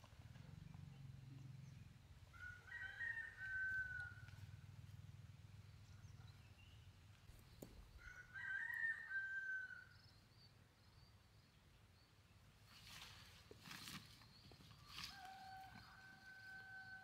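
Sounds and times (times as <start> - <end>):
rooster crowing: 2.3 - 4.4, 8.0 - 10.0, 15.1 - 17.0.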